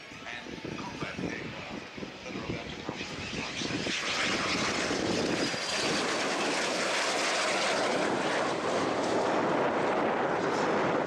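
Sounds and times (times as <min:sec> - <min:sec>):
jet engine roar: 0:00.0 - 0:11.0.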